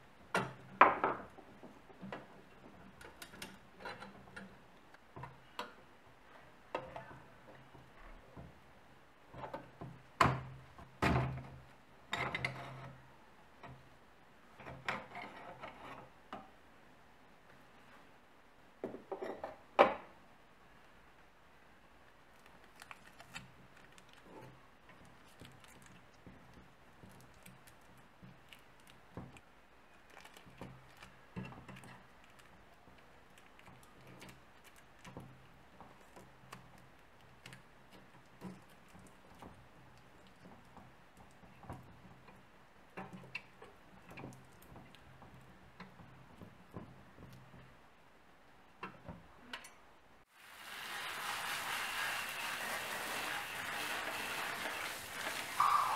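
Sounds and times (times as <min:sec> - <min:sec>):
plastic film crinkling: 0:22.3 - 0:24.4, 0:30.0 - 0:31.2.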